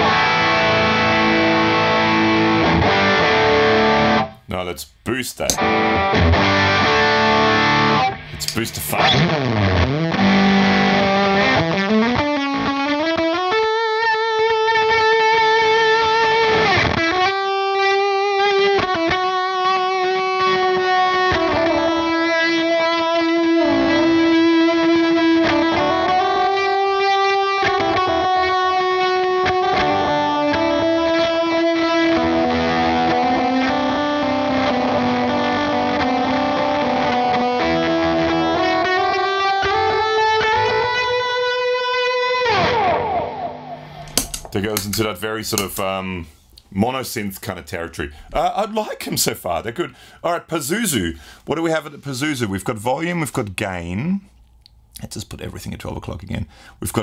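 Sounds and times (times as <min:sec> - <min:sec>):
fuzzy electric guitar lead: 0:00.0 - 0:04.5, 0:05.4 - 0:45.0.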